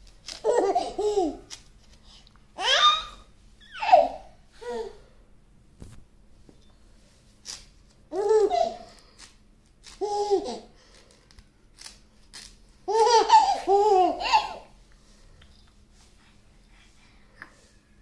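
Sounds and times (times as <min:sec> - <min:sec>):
baby laughing: 0:00.3 - 0:01.5, 0:02.6 - 0:04.9, 0:08.1 - 0:08.9, 0:10.0 - 0:10.7, 0:12.9 - 0:14.7.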